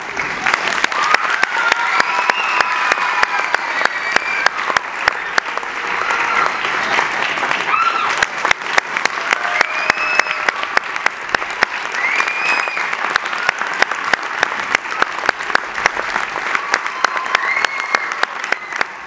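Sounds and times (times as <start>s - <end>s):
audience applauding: 0.0s - 19.0s
people whooping: 0.8s - 6.7s, 7.6s - 8.4s, 9.1s - 10.8s, 11.7s - 13.9s, 14.6s - 19.0s.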